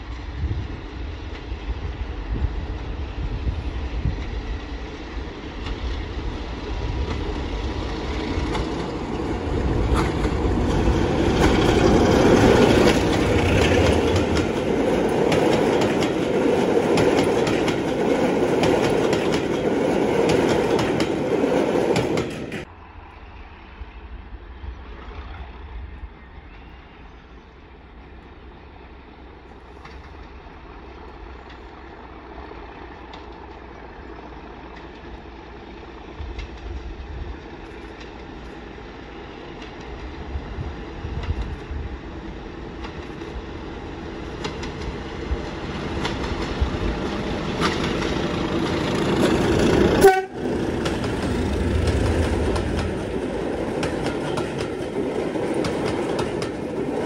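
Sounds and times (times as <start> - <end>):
diesel train passing: 0.0 - 57.0
distant diesel locomotive rumble: 0.0 - 57.0
wheels clicking over rails: 6.9 - 22.7, 42.6 - 57.0.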